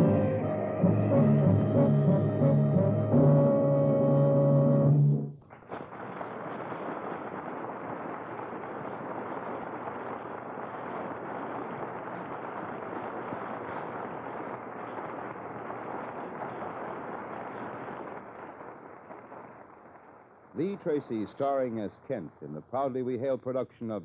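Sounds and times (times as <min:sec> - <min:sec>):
steady rushing noise: 0:05.7 - 0:21.6.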